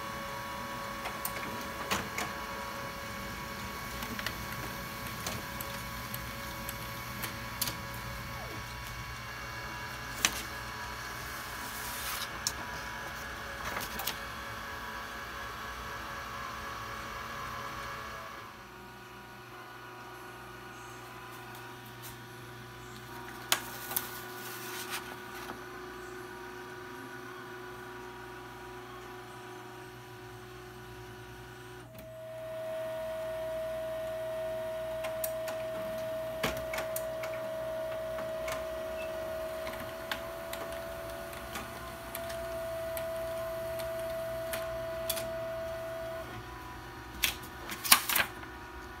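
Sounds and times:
laser printer humming: 0:00.0 - 0:49.0
printer whine: 0:00.0 - 0:49.0
printer clicks: 0:01.0 - 0:02.6, 0:34.9 - 0:46.0.

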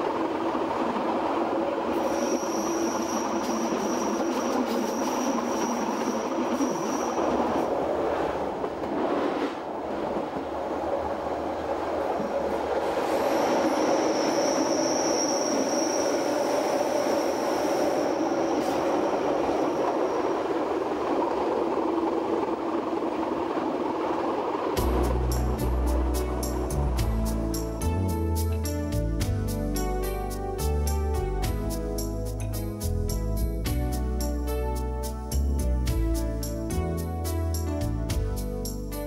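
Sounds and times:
train rolling over rails: 0:00.0 - 0:38.9
high-pitched wheel squeal: 0:02.0 - 0:07.7, 0:13.2 - 0:20.7.

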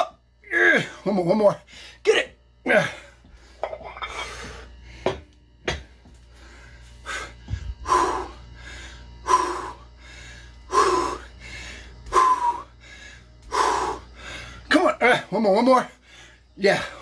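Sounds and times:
low steady hum: 0:00.0 - 0:17.0
man breathing hard and grunting: 0:02.6 - 0:05.2, 0:06.3 - 0:15.2.

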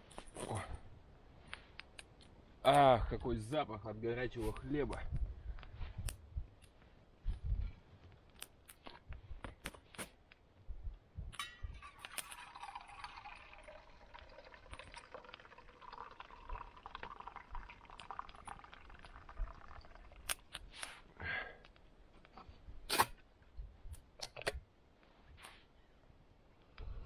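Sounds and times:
liquid pouring into metal mug: 0:11.4 - 0:20.5.

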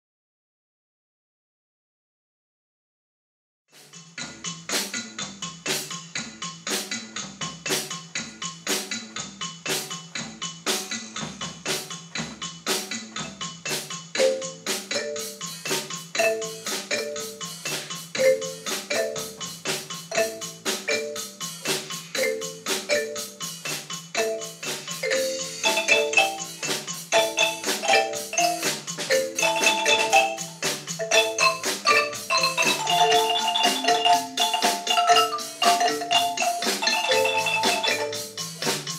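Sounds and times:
wooden xylophones played with mallets: 0:13.0 - 0:38.9.

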